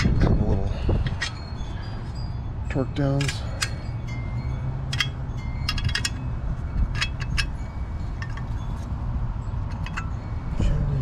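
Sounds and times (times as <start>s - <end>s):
wrench clinking on metal nut: 1.0s - 1.4s, 2.7s - 3.9s, 4.9s - 8.9s, 9.6s - 10.8s.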